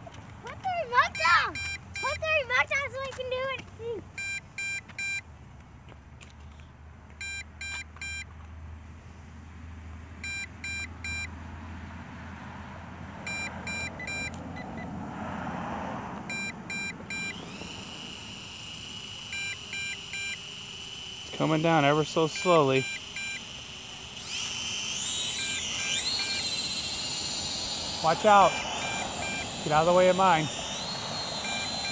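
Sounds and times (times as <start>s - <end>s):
remote control short high beeps: 0.9s - 2.4s, 4.2s - 5.2s, 7.2s - 8.3s, 10.2s - 11.3s, 13.3s - 14.9s, 16.3s - 18.2s, 19.2s - 20.8s, 21.4s - 23.6s, 24.2s - 31.9s.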